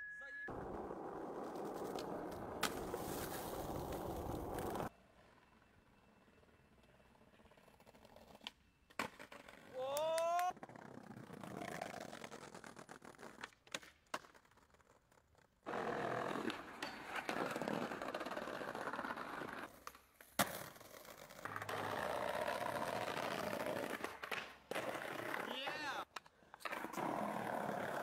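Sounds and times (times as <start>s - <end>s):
skateboard wheels rolling on paving: 0.5s - 28.0s
skateboard clacks: 7.5s - 28.0s.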